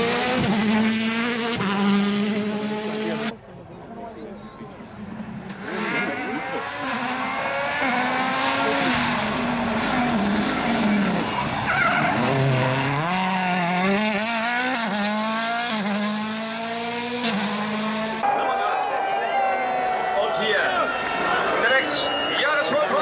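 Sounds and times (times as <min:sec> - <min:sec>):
rally car engine at full effort: 0:00.0 - 0:03.4, 0:04.8 - 0:18.5.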